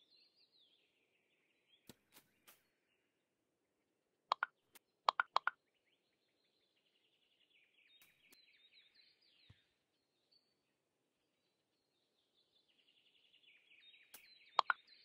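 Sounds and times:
faint twittering bird song: 0.0s - 15.0s
short sharp clicks: 14.1s - 14.8s.

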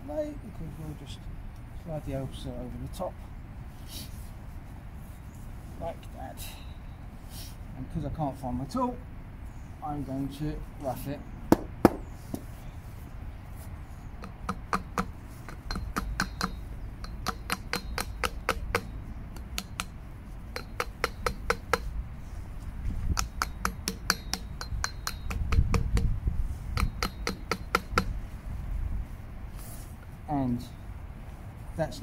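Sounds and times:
hammer tapping metal: 14.2s - 21.9s, 23.1s - 26.1s, 26.7s - 28.1s.

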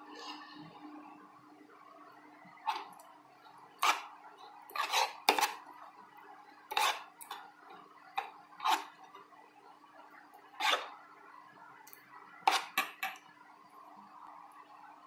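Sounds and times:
spoon scraping against bowl: 2.7s - 5.9s, 6.7s - 9.3s, 10.4s - 11.0s, 12.4s - 13.2s.

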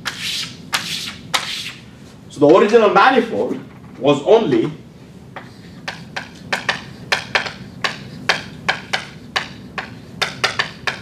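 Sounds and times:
chalk tapping on blackboard: 0.0s - 1.8s, 5.4s - 11.0s.

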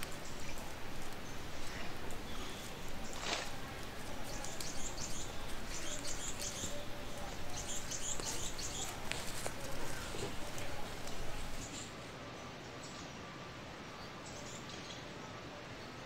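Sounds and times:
birds chirping: 0.0s - 16.0s
outdoor hiss: 0.0s - 16.0s
brief rustle: 3.0s - 6.8s.

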